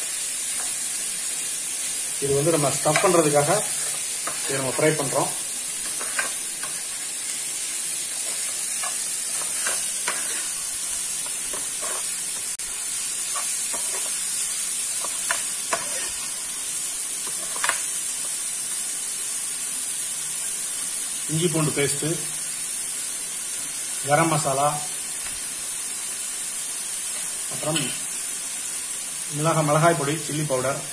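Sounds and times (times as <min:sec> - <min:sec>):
vegetables sizzling in a frying pan: 0:00.0 - 0:30.9
metal spoon scraping a pan: 0:05.8 - 0:07.1, 0:08.1 - 0:12.4, 0:13.2 - 0:14.2, 0:15.0 - 0:16.4, 0:17.2 - 0:17.8.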